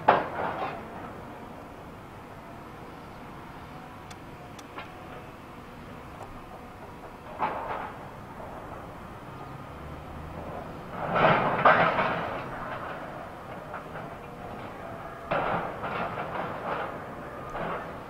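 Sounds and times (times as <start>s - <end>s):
low machinery noise: 0.0s - 18.0s
heavy container clanks and bangs: 10.9s - 18.0s.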